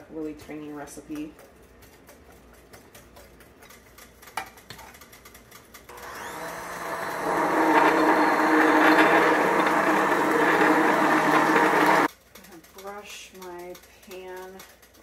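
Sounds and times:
immersion blender running: 5.9 - 12.1.

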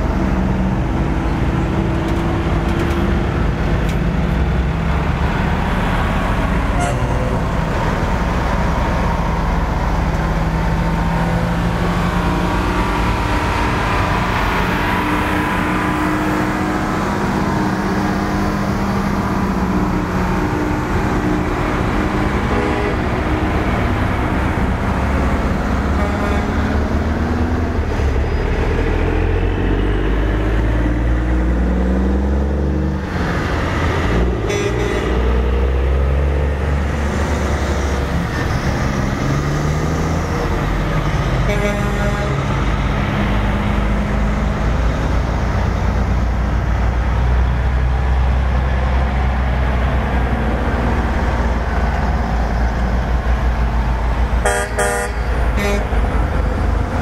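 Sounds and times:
diesel trucks driving past: 0.0 - 57.0.

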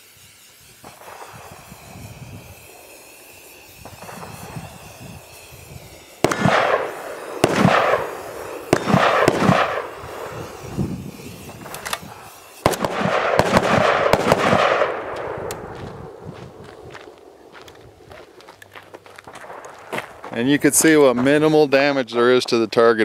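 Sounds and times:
spray can hissing: 0.0 - 22.8.

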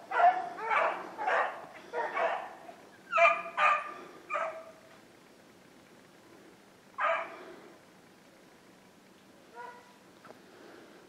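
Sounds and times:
dogs barking: 0.0 - 4.9, 7.0 - 7.4, 9.5 - 10.0.

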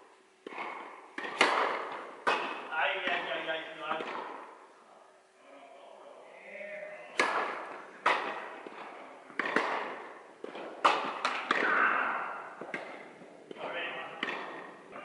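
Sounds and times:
tennis ball bounces: 0.4 - 4.6, 7.1 - 15.0
tennis racket strikes: 0.4 - 4.6, 7.1 - 14.8.

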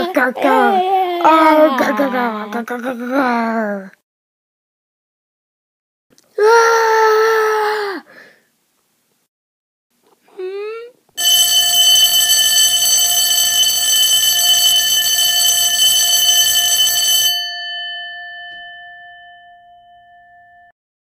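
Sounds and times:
alarm bell ringing: 11.2 - 20.8.

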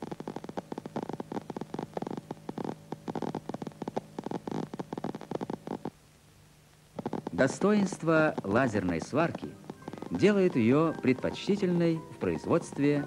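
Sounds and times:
laser welder crackling clicks: 7.0 - 13.0.

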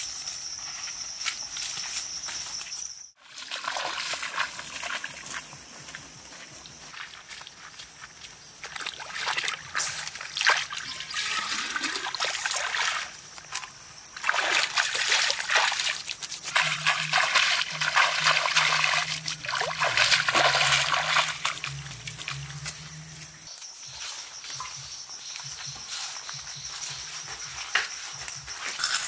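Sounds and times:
pond water splashing and sloshing: 3.2 - 7.8, 8.6 - 23.5.

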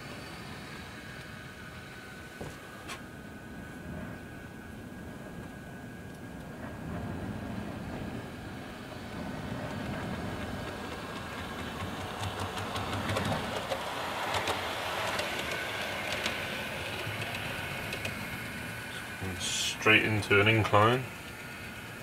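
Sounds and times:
wheels rolling on rails: 0.0 - 22.0
model train motor whirring: 8.5 - 22.0.

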